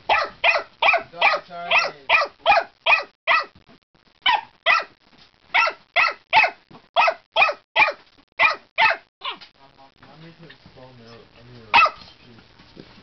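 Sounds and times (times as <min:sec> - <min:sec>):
puppy yapping: 0:00.1 - 0:03.5, 0:04.2 - 0:04.9, 0:05.6 - 0:09.5, 0:11.8 - 0:12.0.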